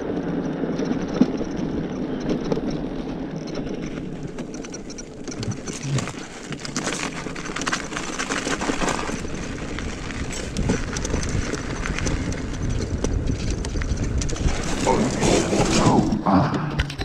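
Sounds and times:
tyres crunching on snow and ice: 0.0s - 16.7s
low rumble: 12.4s - 17.0s.

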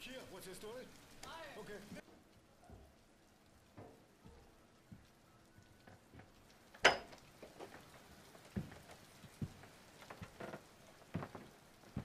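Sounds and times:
footsteps: 3.7s - 5.2s, 5.9s - 6.5s, 7.1s - 12.0s.

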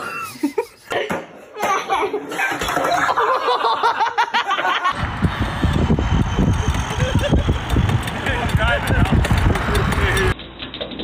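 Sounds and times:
group of people laughing: 0.0s - 1.1s, 1.8s - 5.1s, 6.4s - 7.8s
low rumble: 5.0s - 10.4s.

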